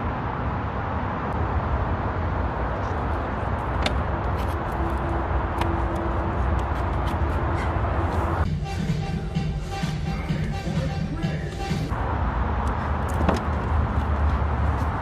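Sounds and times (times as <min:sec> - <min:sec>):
car low rumble: 0:11.4 - 0:15.0.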